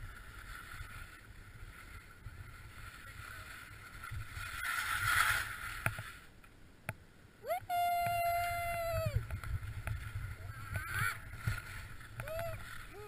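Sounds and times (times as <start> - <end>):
scraping and sliding over snow: 0.0 - 6.3, 8.4 - 13.0
wind rumble on microphone: 7.4 - 13.0.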